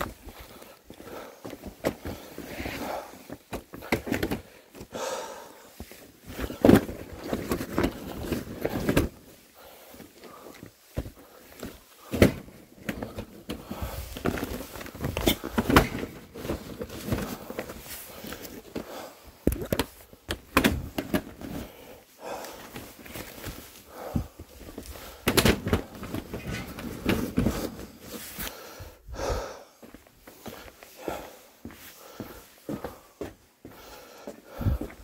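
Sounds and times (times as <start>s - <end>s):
rustling of bags and boxes: 0.0s - 35.0s
footsteps: 29.2s - 35.0s.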